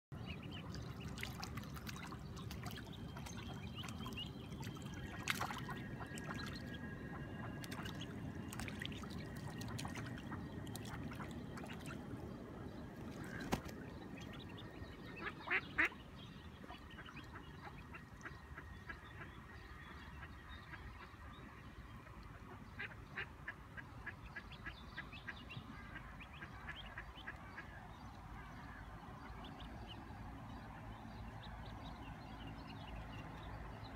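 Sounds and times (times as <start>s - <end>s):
water trickling: 0.5s - 14.6s.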